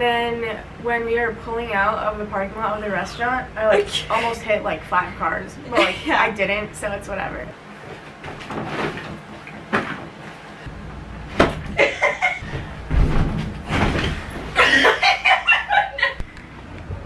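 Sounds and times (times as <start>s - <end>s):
body landing on mattress: 11.3s - 11.8s, 12.4s - 14.7s.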